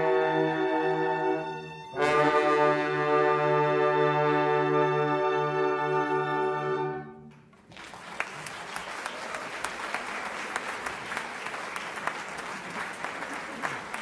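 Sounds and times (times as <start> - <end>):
audience applause: 7.6 - 14.0.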